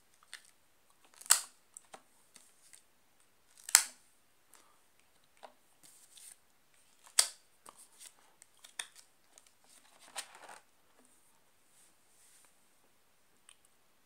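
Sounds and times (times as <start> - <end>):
binder page turning: 7.0 - 10.7.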